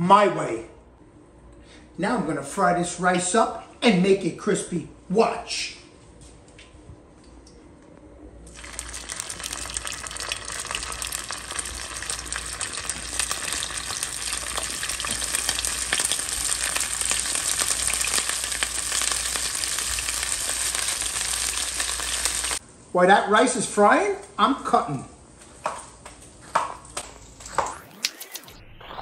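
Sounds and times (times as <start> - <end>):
rice frying in hot oil: 8.5 - 22.6.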